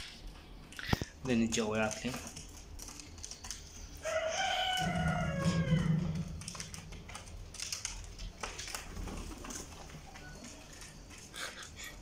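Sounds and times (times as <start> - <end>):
light clicks and scratches: 0.0 - 4.2
rooster crowing: 3.9 - 6.7.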